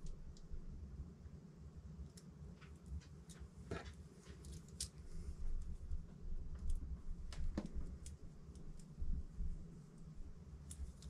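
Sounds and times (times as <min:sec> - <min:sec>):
faint clicks and handling noises: 0:00.0 - 0:00.6, 0:02.0 - 0:09.0, 0:09.8 - 0:11.0
low steady hum: 0:00.0 - 0:11.0.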